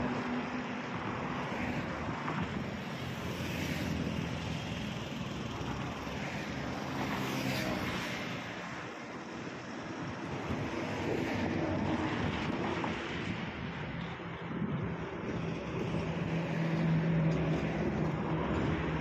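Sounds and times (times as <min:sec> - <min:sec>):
motorbikes passing: 0:00.0 - 0:19.0
trucks passing with tyre noise: 0:00.0 - 0:19.0.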